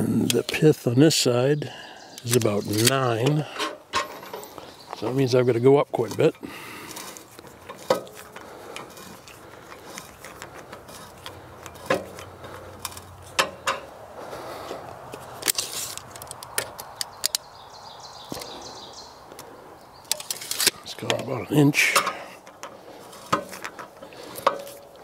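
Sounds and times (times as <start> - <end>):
sharp metal clicks and clanks: 6.1 - 13.9.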